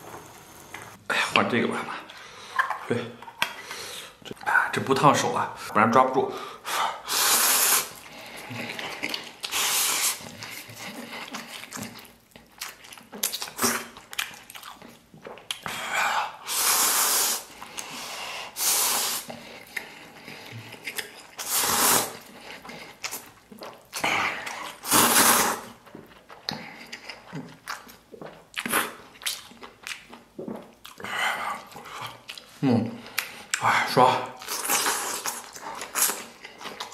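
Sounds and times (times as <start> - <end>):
person slurping noodles: 7.0 - 11.6, 15.8 - 23.2, 24.0 - 25.8, 34.4 - 36.4.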